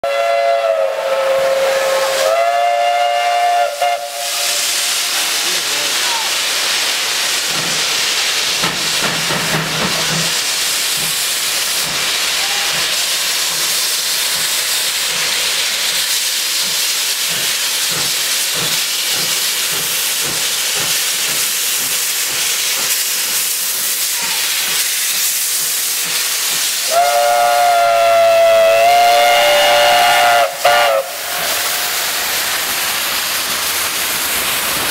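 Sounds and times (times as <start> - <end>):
steam locomotive whistle: 0.0 - 5.4, 26.8 - 32.0
loud hiss of steam: 0.0 - 34.9.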